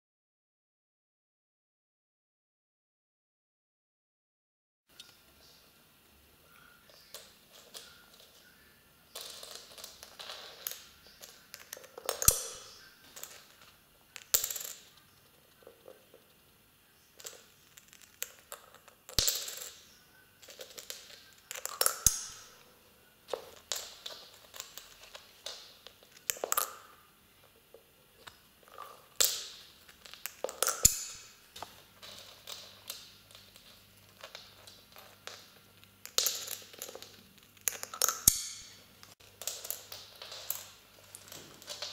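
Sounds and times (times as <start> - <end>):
coins clinking into piggy bank: 9.1 - 15.0, 17.2 - 22.7.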